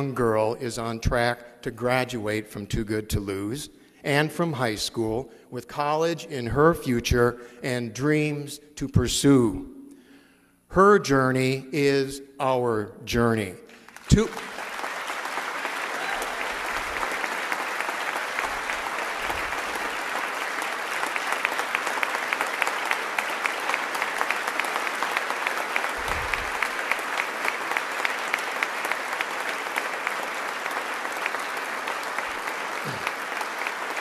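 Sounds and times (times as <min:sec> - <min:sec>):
audience applauding: 0:13.7 - 0:34.0.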